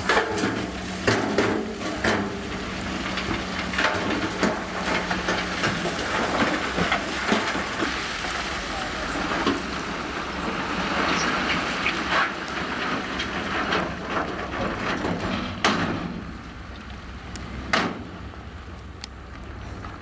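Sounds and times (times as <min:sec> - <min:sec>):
metallic clanks and knocks: 0:00.0 - 0:07.7
diesel engine under load: 0:00.0 - 0:20.0.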